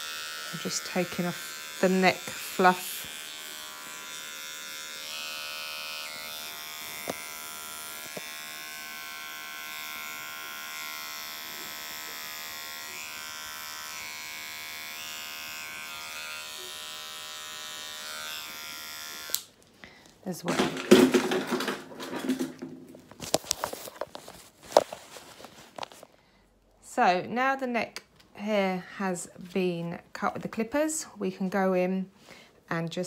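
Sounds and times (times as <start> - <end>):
electric hair clippers buzzing: 0.0 - 19.6.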